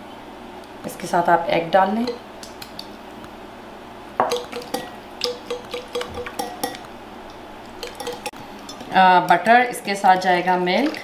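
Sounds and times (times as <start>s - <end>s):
whisk clinking against glass bowl: 4.2s - 6.8s, 7.8s - 8.8s.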